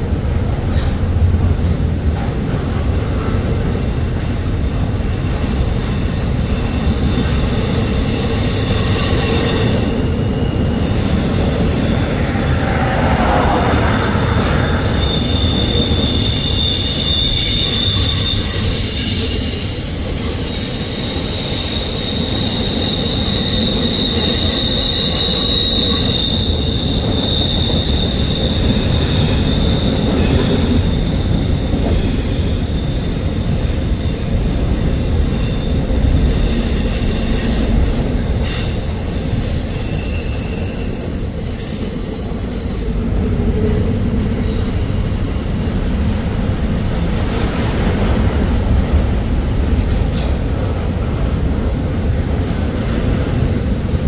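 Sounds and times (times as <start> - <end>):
train wheels rumbling on rail: 0.0 - 54.0
wheel squeal: 2.8 - 5.0, 6.6 - 33.4, 35.4 - 48.7.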